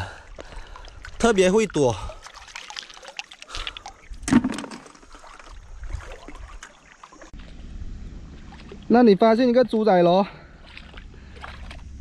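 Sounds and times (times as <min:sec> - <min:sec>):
water lapping among rocks: 0:00.0 - 0:07.6, 0:10.5 - 0:12.0.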